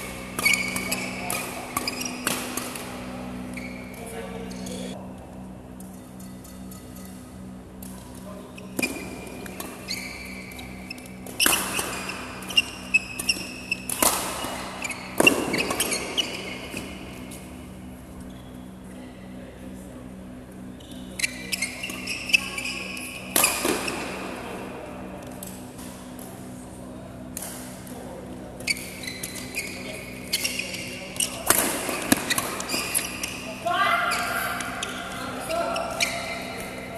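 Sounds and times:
steady low hum: 0.0s - 36.9s
shoe squeaks on court: 0.2s - 2.3s, 3.3s - 4.9s, 8.6s - 17.4s, 20.8s - 23.6s, 28.6s - 33.5s, 34.1s - 36.9s
rackets hitting shuttlecock: 0.2s - 3.6s, 8.7s - 17.3s, 23.2s - 24.2s, 31.1s - 33.5s.

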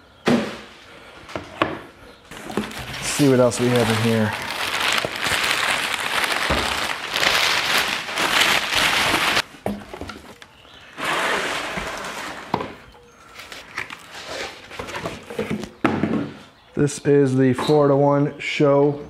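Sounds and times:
packing paper crinkling: 2.3s - 9.5s
cardboard boxes handled: 2.3s - 10.4s, 13.4s - 16.3s.

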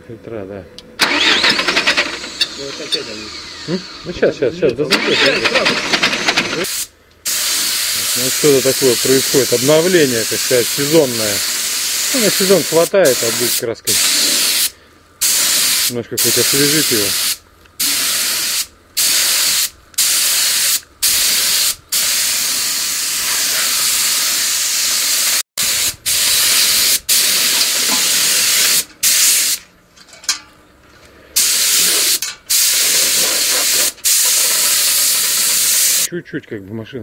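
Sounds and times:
paint spray gun hissing: 5.7s - 29.6s, 31.4s - 36.1s.

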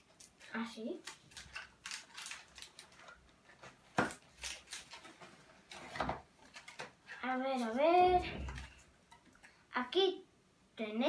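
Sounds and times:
plastic wrapper crinkling: 0.1s - 6.9s
wrapper tearing open: 1.0s - 3.2s, 4.2s - 5.1s.

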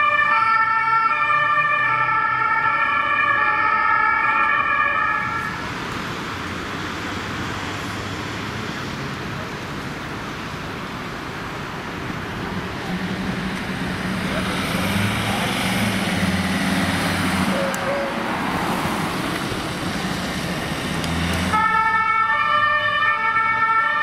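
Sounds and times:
ambulance siren: 0.0s - 5.8s, 16.9s - 18.4s, 21.4s - 24.0s
street and traffic noise: 0.0s - 24.0s
van engine pulling away: 12.4s - 21.8s.

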